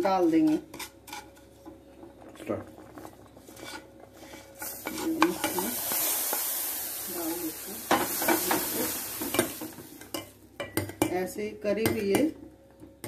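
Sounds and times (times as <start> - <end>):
food sizzling into boiling milk: 0.0 - 13.0
steel spoon scraping a pot: 0.4 - 1.5, 3.5 - 5.6.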